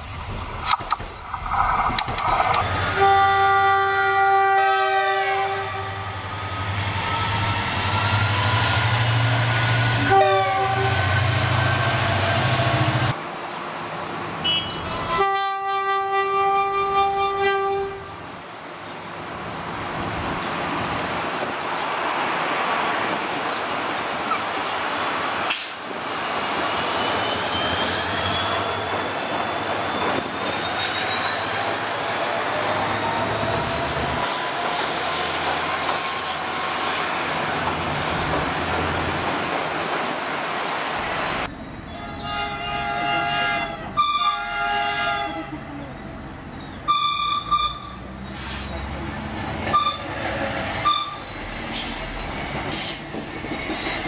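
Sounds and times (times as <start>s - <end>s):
train rumble and rail clatter: 0.0s - 54.0s
locomotive horn: 2.9s - 6.2s, 10.0s - 11.2s, 14.4s - 18.2s, 41.9s - 45.6s, 46.9s - 48.0s, 49.7s - 51.3s.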